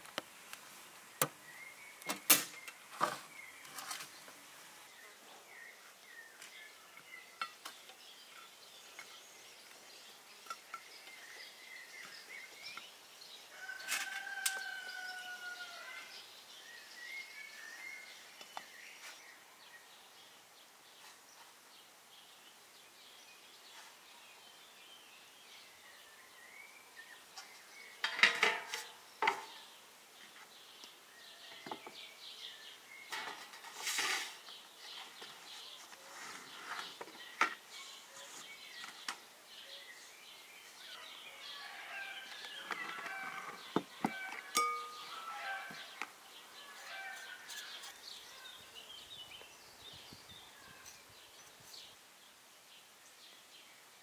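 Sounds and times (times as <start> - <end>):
small birds chirping: 0.1 - 54.0
rooster crowing: 13.5 - 16.1, 41.3 - 46.0.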